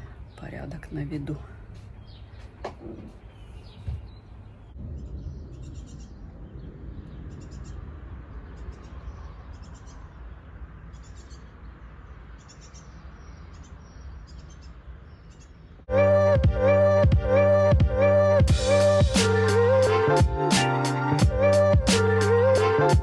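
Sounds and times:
small birds chirping: 0:00.0 - 0:15.9.

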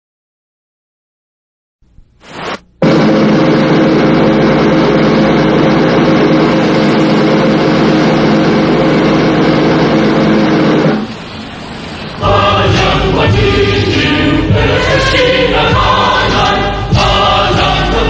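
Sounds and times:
loud rushing hiss: 0:02.0 - 0:18.0
vehicle engine running: 0:02.7 - 0:18.0
choir singing: 0:12.2 - 0:18.0.

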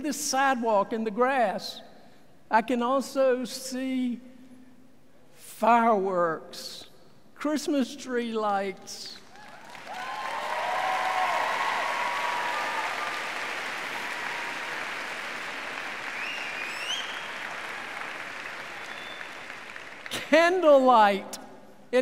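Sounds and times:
people cheering: 0:09.3 - 0:20.2
audience applause: 0:09.3 - 0:20.3.

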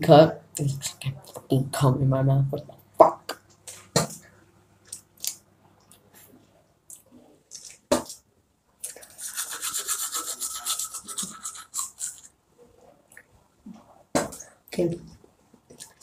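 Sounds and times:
toothbrush scrubbing teeth: 0:08.8 - 0:12.4.

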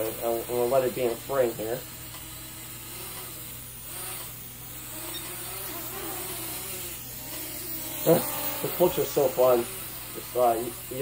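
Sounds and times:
quadcopter motors whining: 0:00.0 - 0:11.0
steady hiss: 0:06.9 - 0:11.0.

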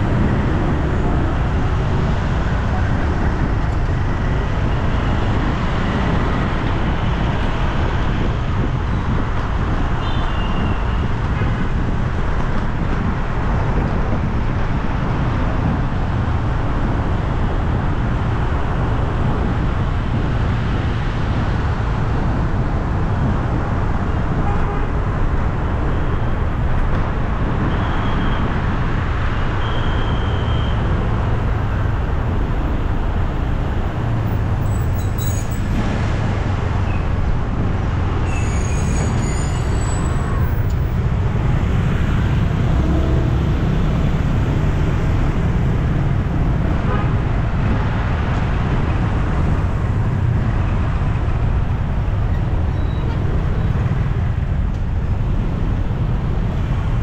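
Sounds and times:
road traffic rumble: 0:00.0 - 0:57.0.

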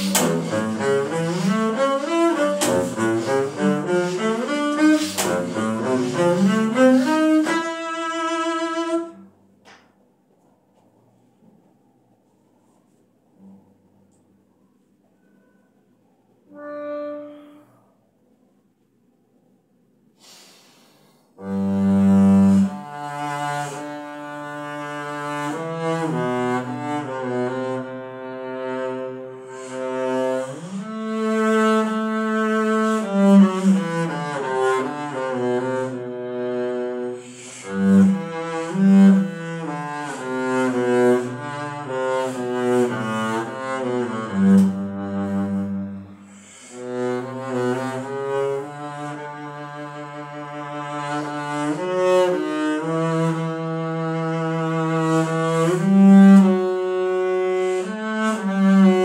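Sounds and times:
bowed double bass: 0:00.0 - 0:09.3, 0:21.4 - 0:59.0.

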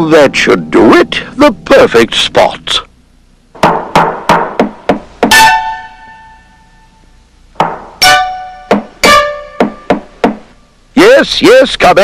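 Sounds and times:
cartoon hammer tapping nail: 0:03.6 - 0:05.4, 0:07.6 - 0:10.4
ringing musical note: 0:05.3 - 0:07.0, 0:08.0 - 0:09.9.

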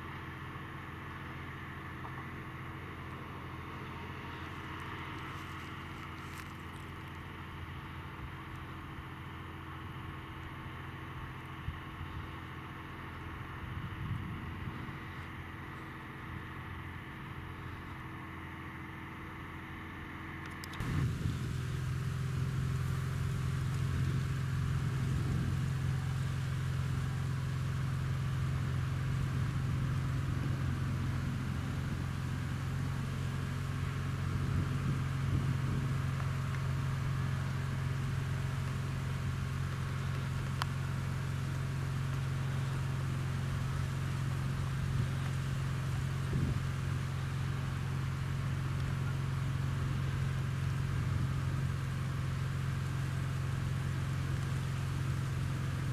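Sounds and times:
diesel engines droning: 0:00.0 - 0:55.9
quiet vehicle engine hum: 0:00.0 - 0:55.9.

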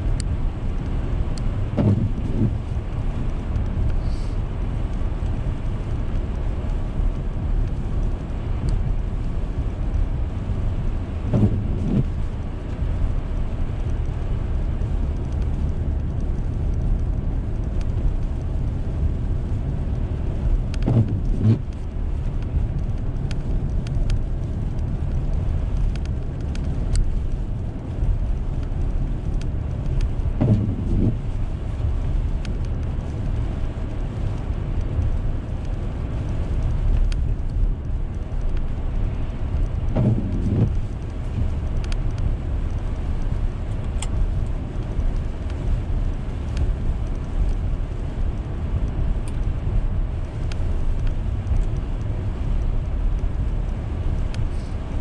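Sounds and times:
road and engine noise in car: 0:00.0 - 0:55.0
windshield wipers sweeping: 0:01.7 - 0:02.8, 0:11.2 - 0:12.4, 0:20.8 - 0:22.2, 0:30.4 - 0:32.2, 0:39.2 - 0:41.5.

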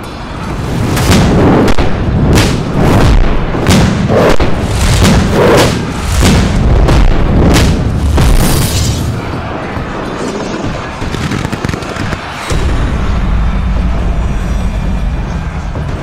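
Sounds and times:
gunshot-like bangs and booms: 0:00.9 - 0:08.7.

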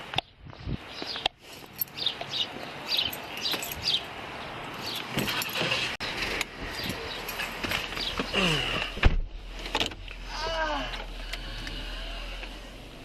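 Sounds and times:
small birds chirping: 0:00.0 - 0:08.8.

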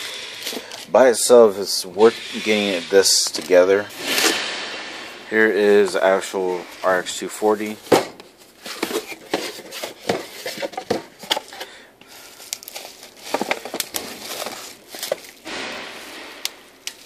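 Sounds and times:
bubble wrap crinkling: 0:07.6 - 0:17.0.

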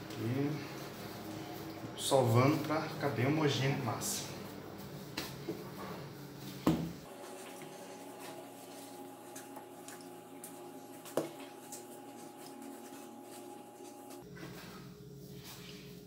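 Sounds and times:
thumps on countertop: 0:06.6 - 0:07.0.

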